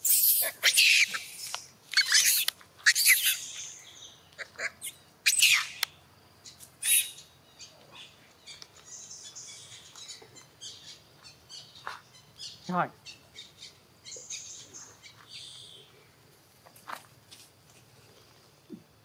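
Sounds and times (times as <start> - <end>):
monkeys shrieking: 0.0 - 3.7, 4.4 - 5.9, 6.8 - 7.2.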